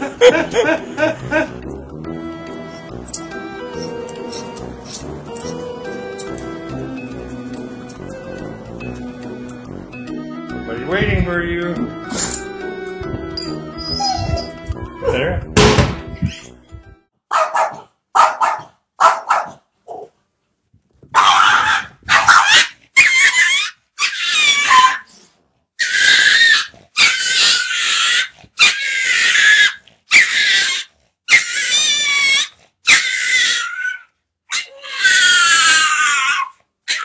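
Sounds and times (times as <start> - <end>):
dog calling loudly: 13.8 - 14.7, 17.3 - 20.1, 21.1 - 25.1, 25.8 - 37.0.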